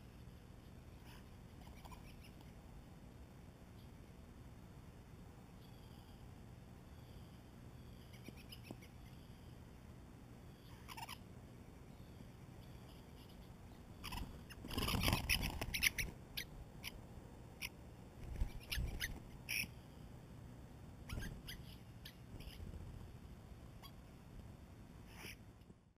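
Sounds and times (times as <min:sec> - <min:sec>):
starlings squeaky clicking calls: 0:08.0 - 0:09.1, 0:10.8 - 0:11.2, 0:12.9 - 0:17.0, 0:17.6 - 0:19.7, 0:21.1 - 0:22.6.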